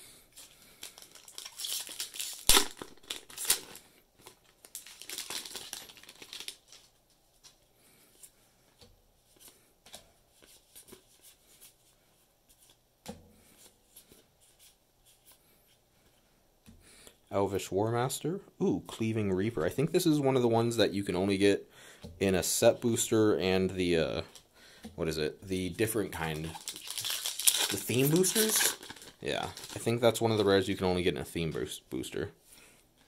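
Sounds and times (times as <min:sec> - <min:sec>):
foil wrapper tearing and crinkling: 0:00.8 - 0:06.9, 0:26.2 - 0:30.7
cards shuffled and flipped: 0:26.3 - 0:30.5.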